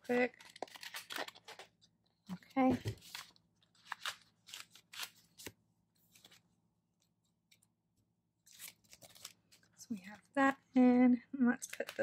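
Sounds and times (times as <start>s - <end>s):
paper pages being handled: 2.5s - 7.7s, 8.4s - 9.8s.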